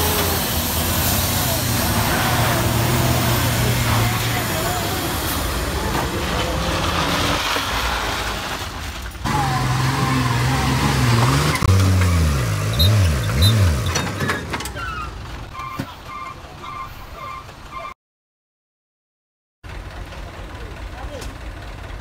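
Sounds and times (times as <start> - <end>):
engine revving: 0.0 - 14.8
heavy truck engine rumbling: 0.0 - 18.0, 19.7 - 22.0
short electronic beeps: 12.7 - 13.8.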